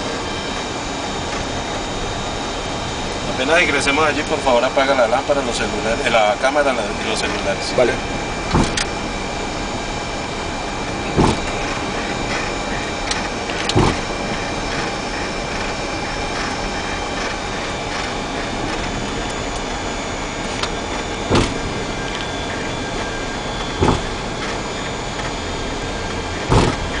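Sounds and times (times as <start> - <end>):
aircraft engines in cockpit: 0.0 - 27.0
thin high instrument whines: 0.0 - 27.0
short thumps: 11.2 - 11.6, 13.6 - 14.1, 21.3 - 21.7, 23.6 - 24.6, 26.4 - 27.0.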